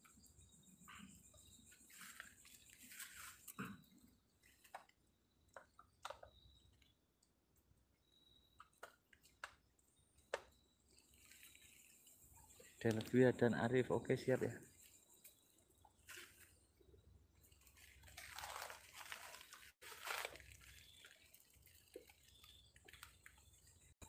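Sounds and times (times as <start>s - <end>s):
soft rustles: 1.5s - 3.6s.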